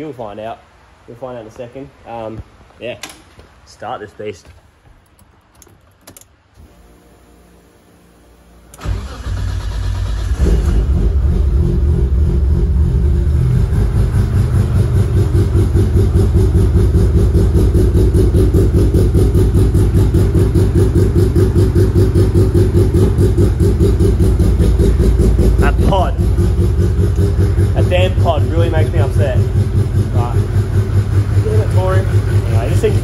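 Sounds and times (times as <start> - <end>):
car engine starting and idling: 4.5 - 33.0.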